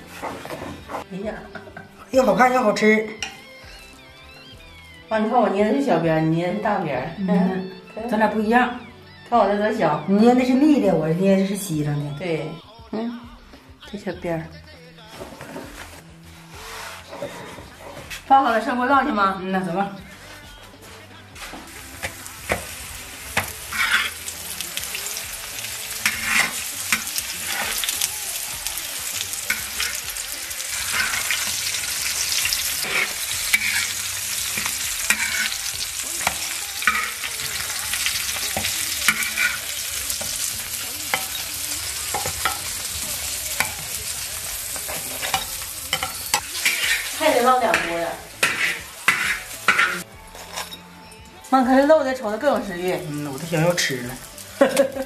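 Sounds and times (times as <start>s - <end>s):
metal spatula scraping wok: 0.0s - 3.4s, 15.2s - 18.7s, 20.0s - 51.1s
dough pockets sizzling in oil: 20.9s - 50.1s, 52.6s - 55.0s.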